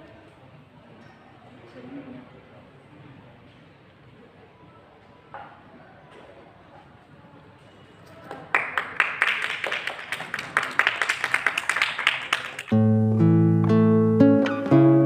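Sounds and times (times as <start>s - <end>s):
people clapping: 8.0s - 12.8s
acoustic guitar music: 12.7s - 15.0s.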